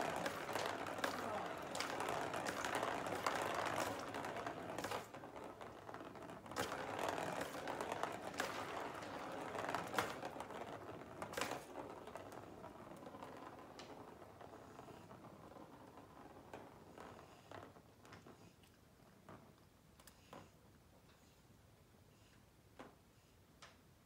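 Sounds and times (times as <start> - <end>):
plastic ball rattling on track: 0.0 - 17.9.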